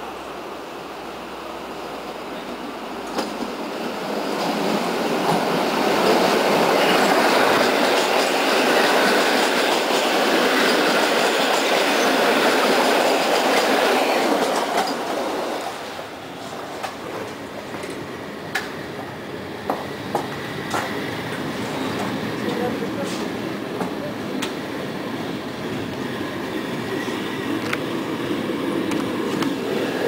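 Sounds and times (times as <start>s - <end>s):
passing train rumble: 0.0s - 30.0s
wheels clacking over rail joints: 4.2s - 24.6s.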